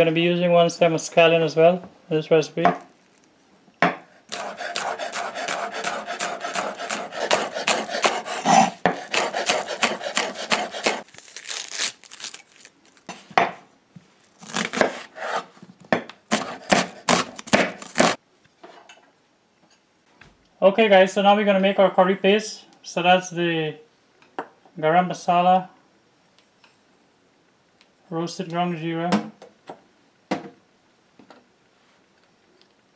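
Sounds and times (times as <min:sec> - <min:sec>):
knife chopping on wooden board: 0:03.8 - 0:11.0, 0:14.6 - 0:18.2
onion skin rustling: 0:04.3 - 0:13.4, 0:14.0 - 0:15.6, 0:16.3 - 0:18.2.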